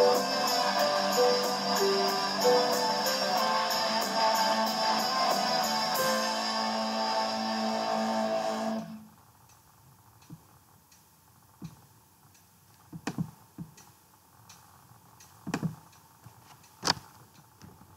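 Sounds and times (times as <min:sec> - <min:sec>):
electronic keyboard notes: 0:00.0 - 0:07.7
faint steady ticking: 0:09.2 - 0:17.6
soft knocks and thumps: 0:12.9 - 0:13.8, 0:15.5 - 0:15.8.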